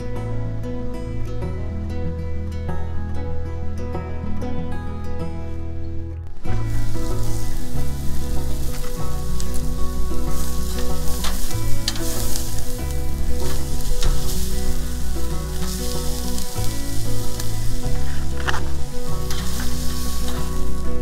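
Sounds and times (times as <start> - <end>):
background music with low notes: 0.0 - 21.0
steak sizzling on a grill: 6.5 - 21.0.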